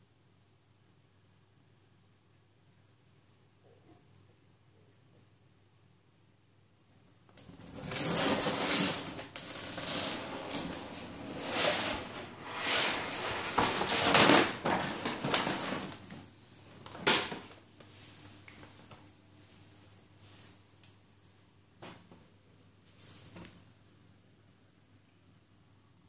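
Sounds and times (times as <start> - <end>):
paper bag sharp crackle: 7.5 - 16.2, 16.8 - 17.5
paper bag rustling and crinkling: 7.6 - 17.5.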